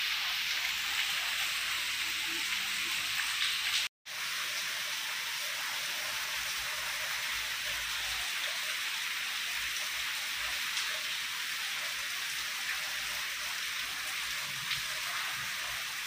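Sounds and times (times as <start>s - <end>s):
heavy rain hissing: 0.0s - 8.2s.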